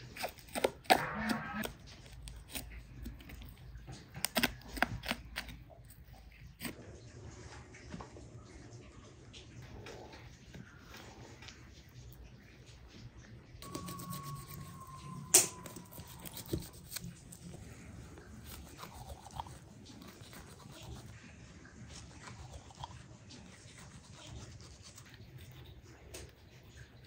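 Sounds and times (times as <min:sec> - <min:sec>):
knife slicing raw meat: 0:13.6 - 0:17.5
hands handling wet meat: 0:13.7 - 0:21.1.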